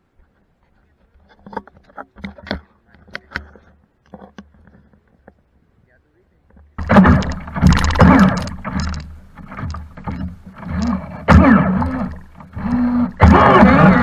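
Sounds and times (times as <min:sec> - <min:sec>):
propeller churning water: 0:06.3 - 0:14.0
electric motor revving: 0:06.8 - 0:14.0.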